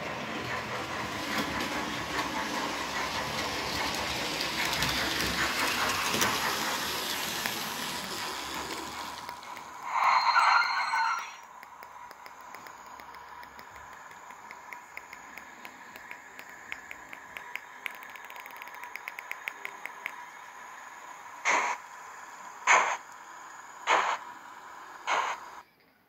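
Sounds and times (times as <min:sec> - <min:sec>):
light ticking: 0:11.4 - 0:20.3
short bursts of hiss: 0:21.4 - 0:23.1, 0:23.8 - 0:24.4, 0:25.0 - 0:25.6.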